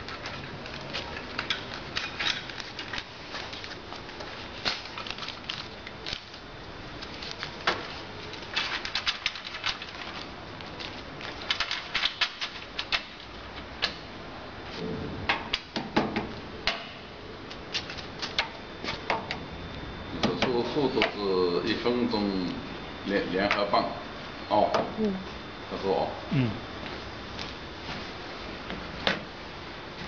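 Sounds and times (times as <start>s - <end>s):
paper flapping: 0.0s - 13.4s.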